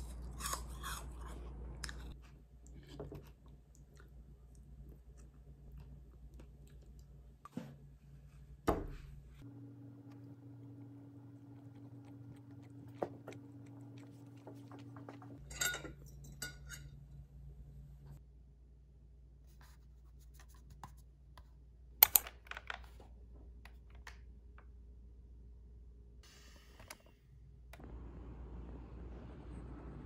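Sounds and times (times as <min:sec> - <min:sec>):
low hum: 0:09.3 - 0:15.7, 0:26.3 - 0:30.0
handling noises: 0:10.1 - 0:16.0.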